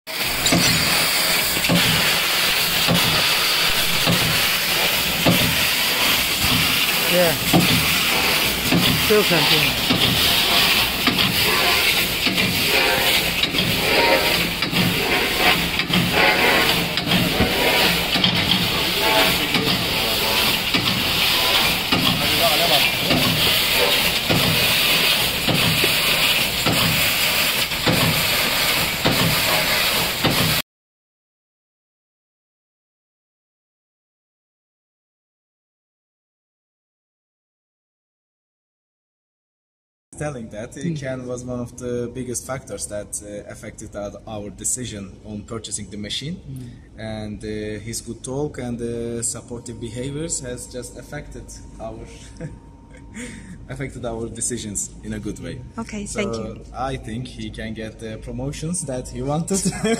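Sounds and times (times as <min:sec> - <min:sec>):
gas jet hissing: 0:00.1 - 0:30.6
machine knock and low hum: 0:02.8 - 0:04.5, 0:05.2 - 0:05.7, 0:07.4 - 0:08.0, 0:08.6 - 0:09.1, 0:23.0 - 0:27.1.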